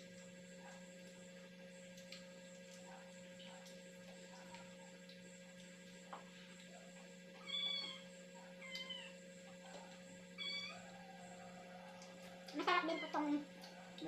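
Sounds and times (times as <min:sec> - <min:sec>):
faint steady hum: 0:00.0 - 0:14.0
cat meowing: 0:07.4 - 0:08.0, 0:10.4 - 0:10.9.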